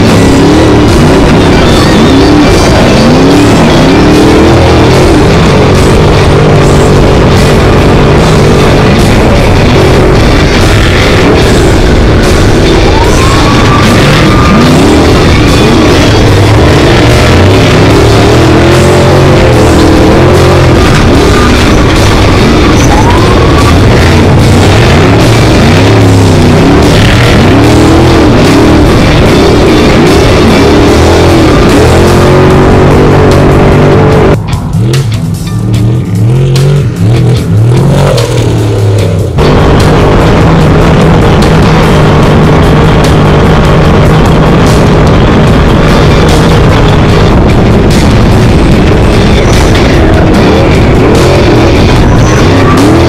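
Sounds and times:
loud rock music: 0.0 - 53.0
race vehicle engine revving: 0.0 - 53.0.

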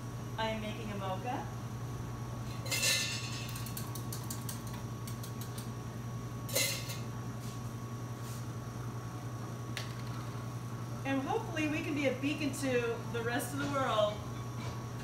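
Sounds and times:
low electrical hum: 0.0 - 15.0
cups and dishes clinking: 6.5 - 7.0.

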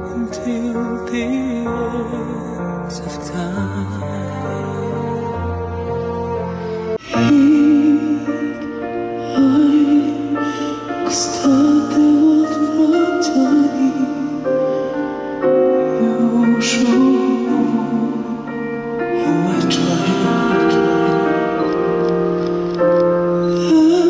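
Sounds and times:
man singing a slow ballad: 0.0 - 5.1, 7.2 - 15.0, 15.7 - 21.6.

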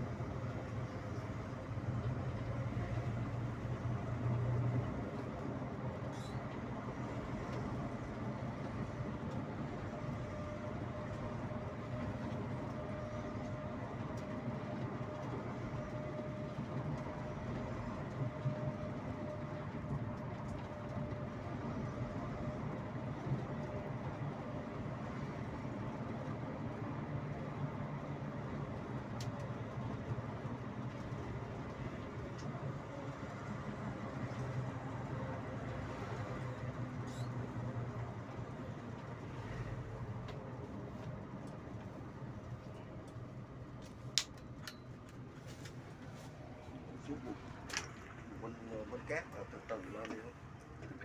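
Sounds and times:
coach engine drone: 0.0 - 51.0
road noise: 0.0 - 51.0.

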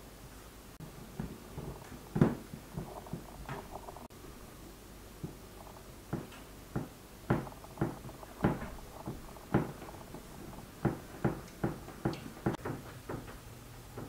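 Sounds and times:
dough thumping on wooden board: 6.1 - 9.9.

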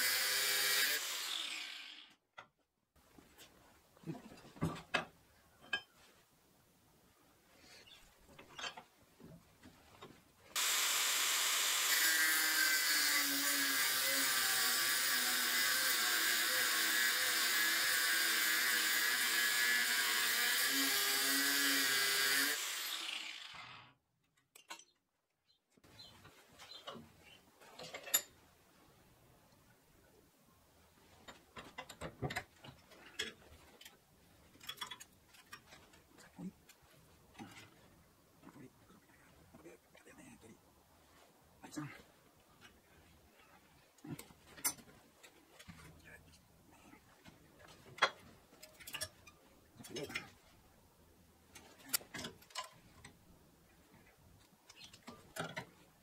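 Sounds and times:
power tool working on steel: 0.0 - 2.1, 10.6 - 23.9.

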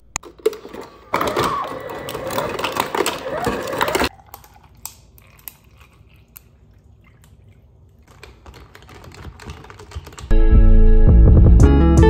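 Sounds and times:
milk pouring into plastic cup: 3.8 - 10.2
loud guitar music with heavy bass: 10.3 - 12.0.

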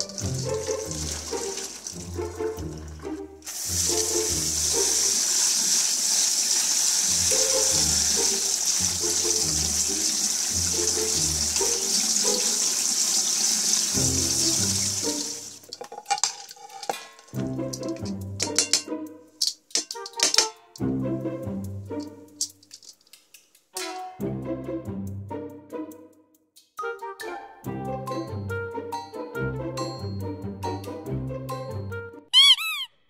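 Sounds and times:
faucet water running: 0.0 - 18.8
strainer knocking on plate: 15.7 - 18.9, 19.8 - 20.5.

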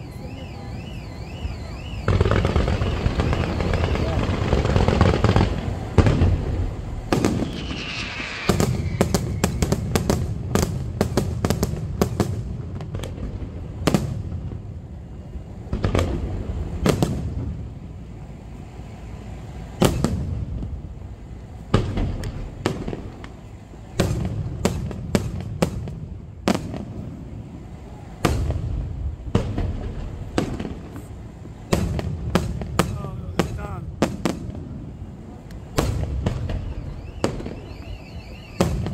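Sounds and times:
continuous low rumble: 0.0 - 38.9
firework shells bursting: 2.0 - 14.2.

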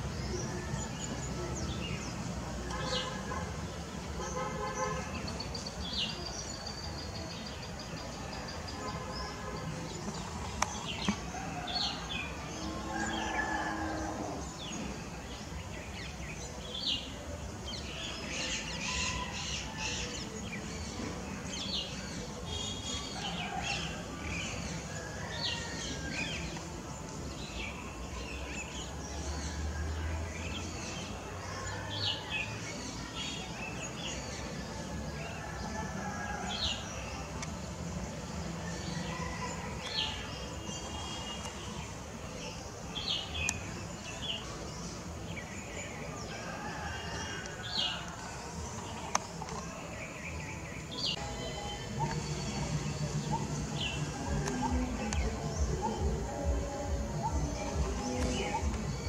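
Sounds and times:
birds chirping: 0.0 - 59.0
outdoor background hiss: 36.4 - 59.0.

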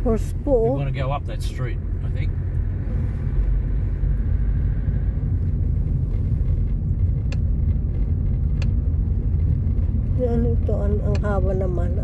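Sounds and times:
road and engine rumble in cabin: 0.0 - 12.0
light ticks: 5.4 - 9.9.

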